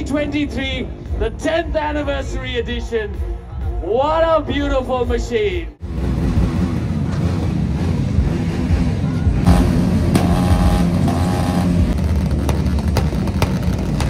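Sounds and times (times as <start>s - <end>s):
motorcycle engine running: 5.8s - 14.0s.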